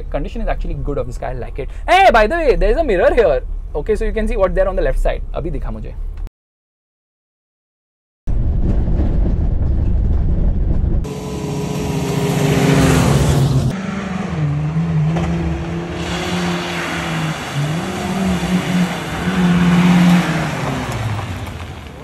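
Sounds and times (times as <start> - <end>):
car engine revving: 11.0 - 22.0.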